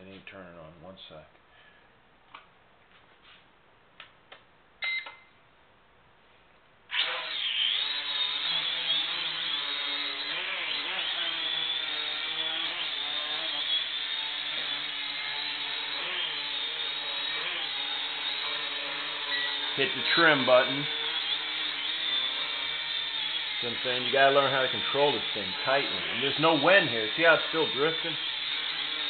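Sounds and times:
toy drone motors whining: 6.9s - 29.0s.

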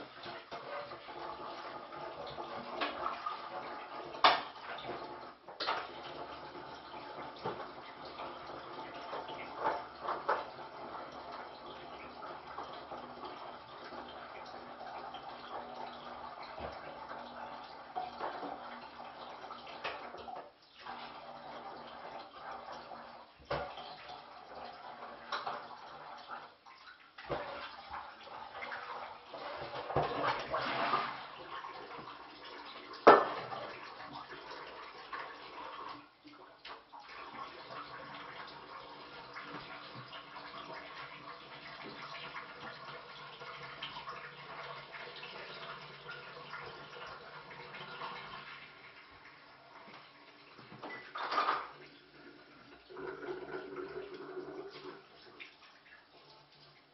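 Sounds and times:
water running from tap: 0.0s - 56.9s
dish clatter: 33.0s - 33.5s, 50.8s - 51.8s
dishes and pots handled: 50.8s - 51.8s.

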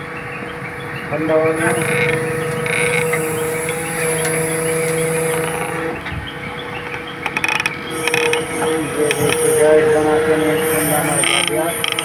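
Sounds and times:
diesel engine idling: 0.0s - 12.0s
rapid metallic clicking and rattling: 1.6s - 9.7s, 10.7s - 12.0s.

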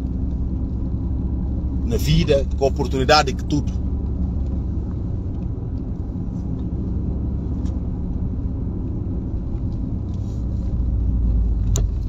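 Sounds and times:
car interior road and engine rumble: 0.0s - 12.0s.

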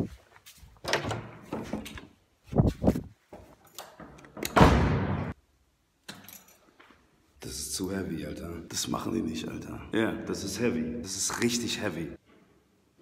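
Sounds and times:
door knocks and thuds: 4.5s - 5.4s.

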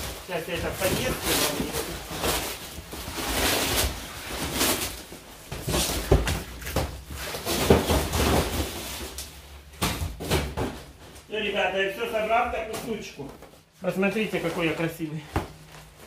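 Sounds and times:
handling knocks and bumps: 4.4s - 8.8s.

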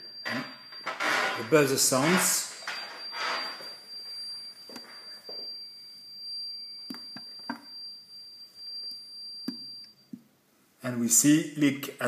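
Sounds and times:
high-pitched alarm buzzer: 0.0s - 6.2s.

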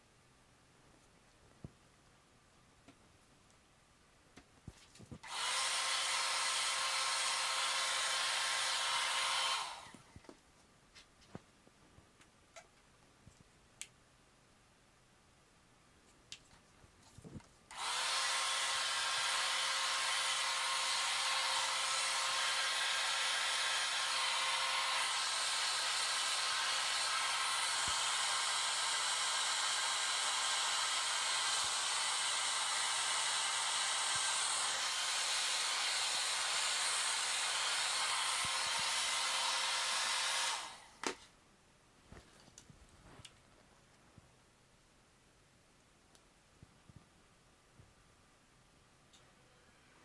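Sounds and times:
blow dryer running: 5.2s - 10.0s, 17.7s - 41.0s.

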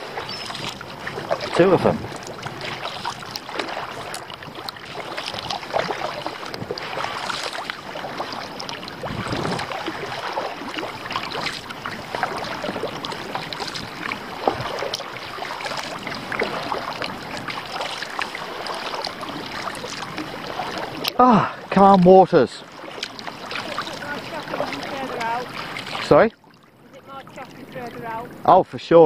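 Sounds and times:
paddle water splashing against kayak: 0.0s - 29.0s.

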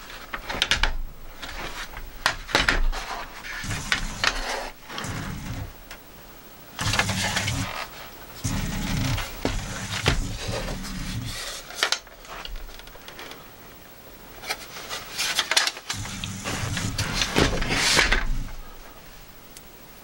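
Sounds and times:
cooling pad clicks and knocks: 0.0s - 4.4s, 8.5s - 10.8s.

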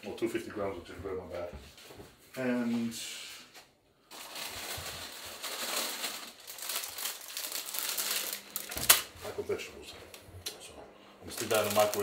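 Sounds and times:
plastic bag crinkling: 4.0s - 9.5s, 11.2s - 12.0s.

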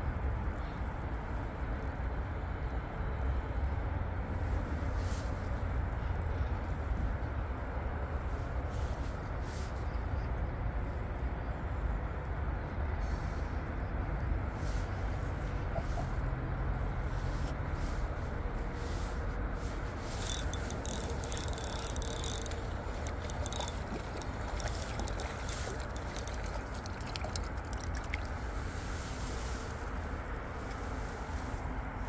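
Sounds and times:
low outdoor rumble: 0.0s - 32.0s
fishing reel clicking: 20.1s - 28.2s.

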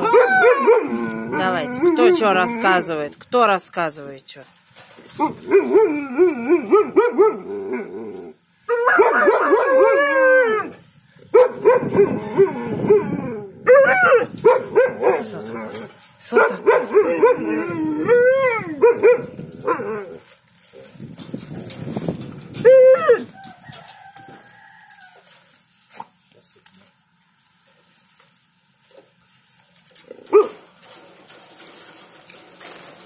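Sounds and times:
dogs howling: 0.0s - 2.9s, 5.4s - 10.8s, 11.5s - 15.2s, 16.7s - 20.2s, 22.5s - 24.4s.

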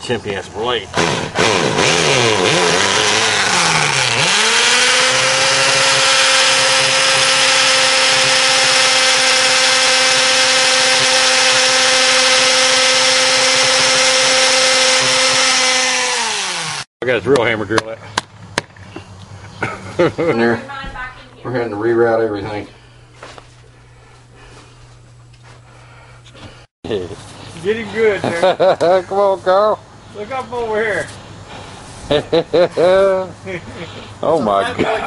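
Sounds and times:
hammer drill boring into brick: 1.0s - 16.9s.

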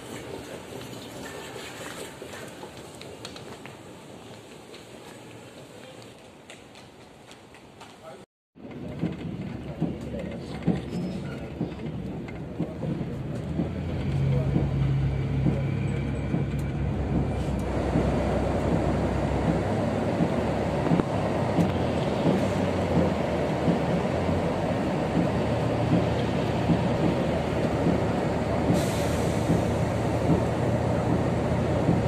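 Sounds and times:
road rumble: 0.0s - 32.0s
bus engine hum: 8.6s - 32.0s.

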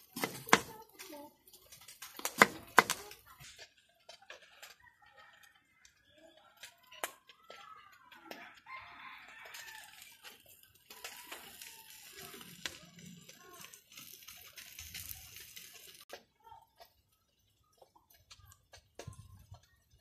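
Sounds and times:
rooster crowing: 8.3s - 10.2s, 10.9s - 12.5s.

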